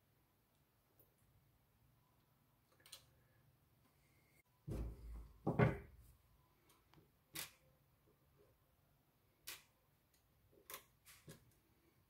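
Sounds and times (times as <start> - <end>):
dull knock on wooden table: 4.7 - 5.9.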